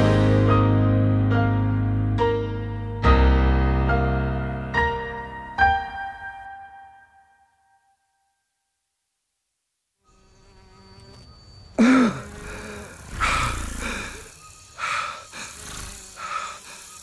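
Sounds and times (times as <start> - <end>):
insect-like buzzing: 10.0 - 17.0.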